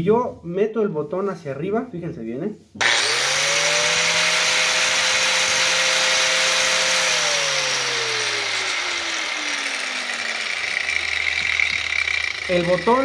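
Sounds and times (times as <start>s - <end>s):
angle grinder spinning down: 2.8s - 13.0s.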